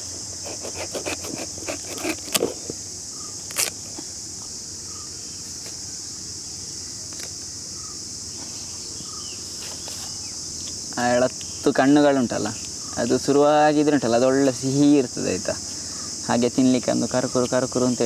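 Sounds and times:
insect chorus: 0.0 - 18.0
knife cutting on wooden board: 0.4 - 2.6.

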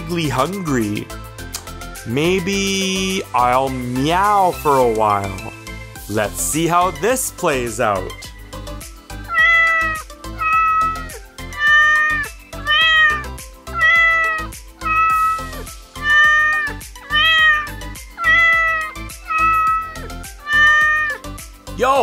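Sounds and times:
cat meowing: 9.2 - 21.4.

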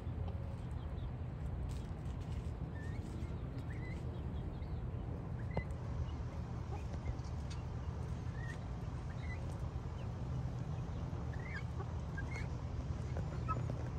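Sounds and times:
chickens chirping: 0.0 - 13.9.

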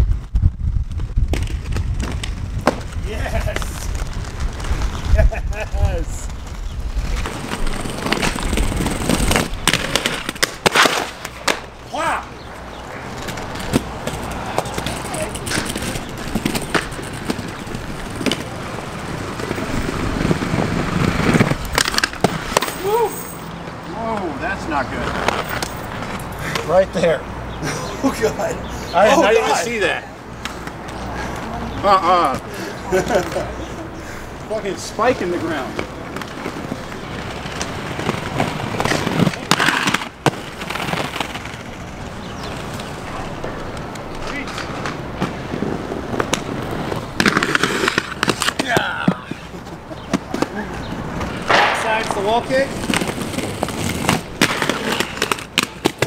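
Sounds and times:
skate wheels rolling on concrete: 0.0 - 56.0
sharp skate clacks: 6.2 - 11.8, 12.7 - 23.1, 25.0 - 26.8, 35.1 - 56.0.

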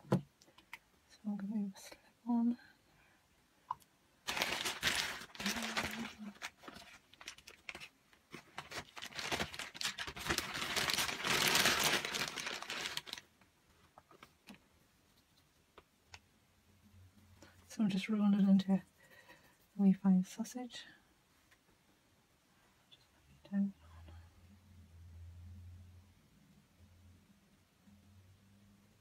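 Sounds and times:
plastic crinkling and rustling: 4.2 - 14.6.

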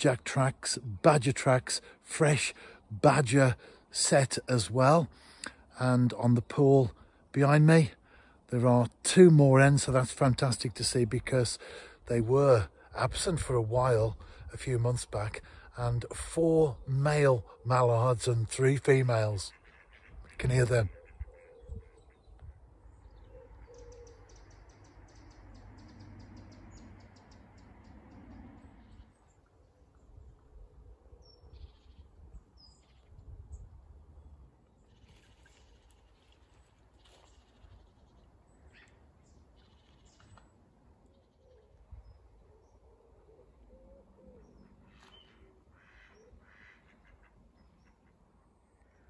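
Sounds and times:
ducks quacking faintly: 17.4 - 24.3, 34.8 - 49.0
ducks quacking: 18.9 - 22.6, 45.8 - 48.2.

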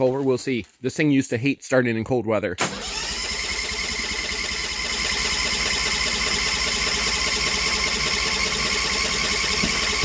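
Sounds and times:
engine cranking on starter: 2.6 - 10.0.

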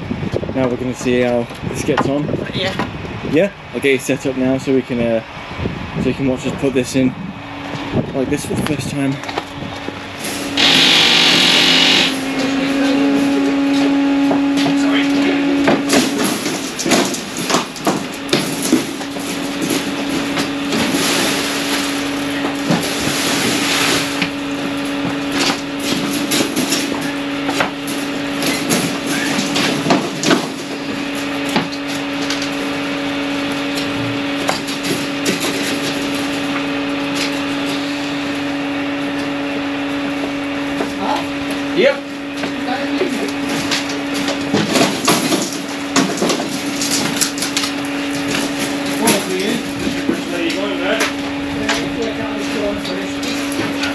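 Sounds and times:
machine hum: 10.0 - 41.5.

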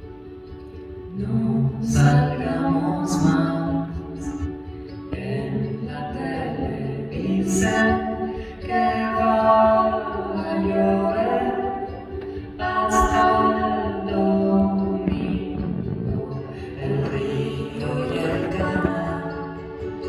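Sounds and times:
acoustic guitar: 0.0 - 20.0
woman singing: 1.1 - 20.0.

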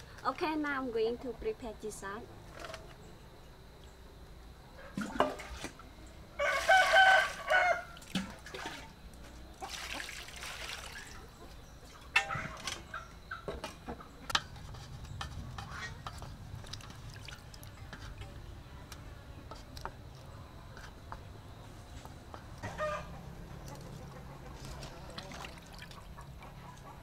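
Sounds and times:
water sloshing in metal basin: 4.9 - 5.9, 6.6 - 13.0, 14.4 - 18.4, 24.5 - 26.6
rooster crowing: 6.4 - 8.1, 22.6 - 23.2.

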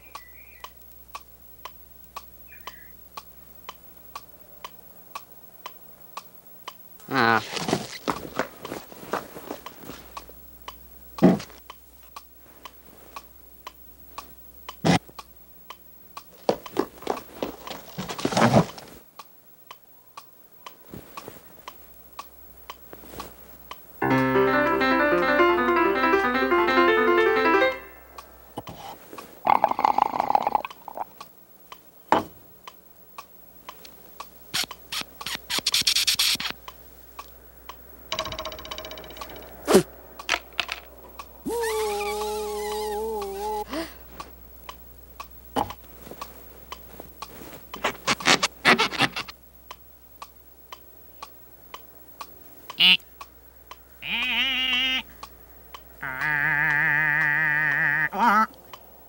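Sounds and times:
loud burst of music: 24.0 - 28.1
short bursts of noise and tone: 34.5 - 36.6
cartoon clicks and knocks: 38.1 - 39.6.

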